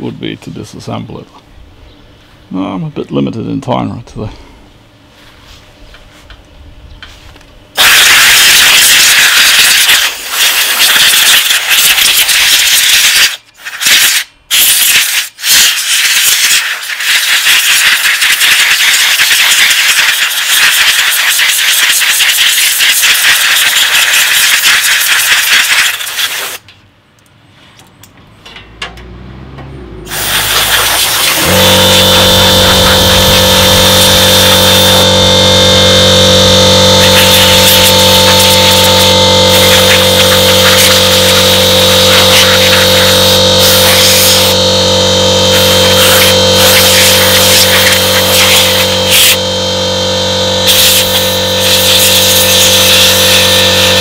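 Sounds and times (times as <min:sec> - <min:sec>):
air compressor humming: 0:04.1 - 0:26.7, 0:29.8 - 0:54.0
compressed air hissing: 0:07.8 - 0:26.6, 0:30.1 - 0:35.2, 0:37.0 - 0:44.6, 0:45.5 - 0:49.4, 0:50.6 - 0:54.0.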